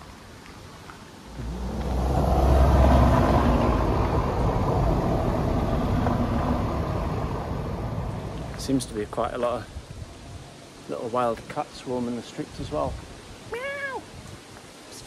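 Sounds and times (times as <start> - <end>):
vehicle driving past: 1.2 - 9.0.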